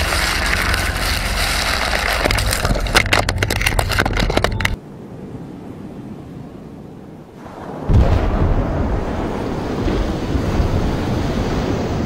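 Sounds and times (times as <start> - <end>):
sharp cracks and pops: 0.0 - 4.8
heavy explosion rumbling: 7.8 - 11.1.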